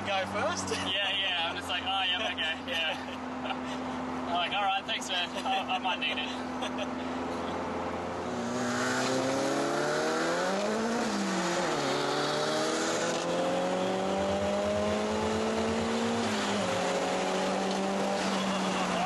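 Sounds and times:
car engine accelerating: 0:06.2 - 0:19.0.

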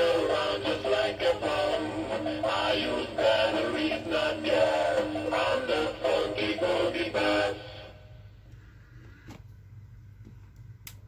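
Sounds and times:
man singing: 0:00.0 - 0:07.7.

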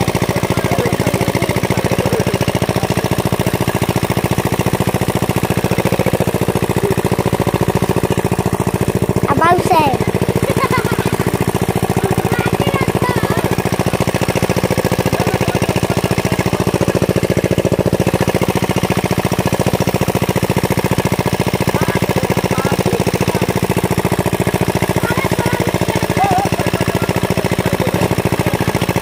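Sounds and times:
small pump engine knocking: 0:00.0 - 0:29.0.

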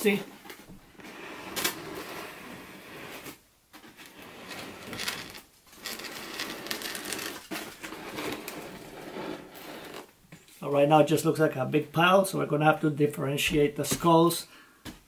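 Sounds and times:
foam block scraping on wooden table: 0:01.0 - 0:10.1.

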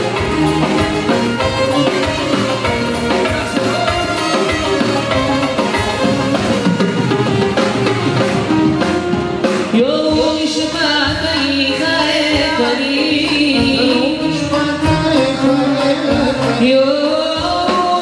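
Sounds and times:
band with violin and drums: 0:00.0 - 0:18.0
man singing ornamented vocal: 0:13.8 - 0:18.0.

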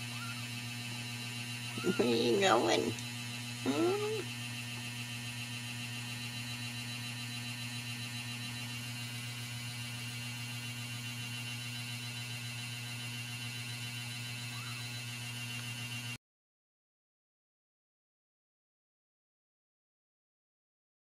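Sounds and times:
mains hum: 0:00.0 - 0:16.2.

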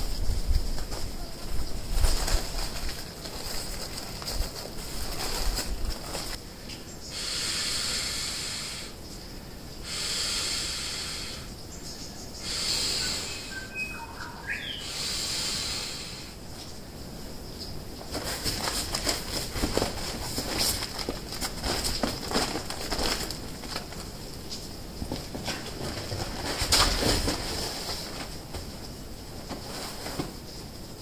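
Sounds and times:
pad rustling: 0:00.6 - 0:06.4, 0:18.0 - 0:24.2, 0:25.0 - 0:28.8
breathy exhalations into valve: 0:07.1 - 0:09.0, 0:09.8 - 0:11.5, 0:12.4 - 0:13.6, 0:14.7 - 0:16.4.

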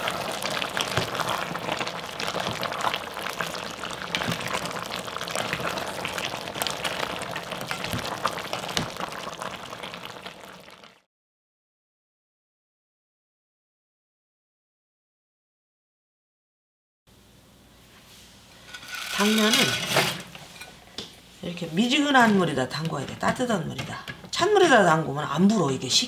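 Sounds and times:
food bubbling in pot: 0:00.0 - 0:11.1.

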